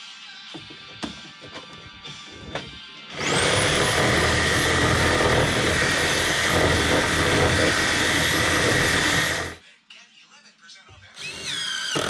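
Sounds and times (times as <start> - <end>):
power tool motor whining: 3.1 - 9.6, 11.2 - 12.0.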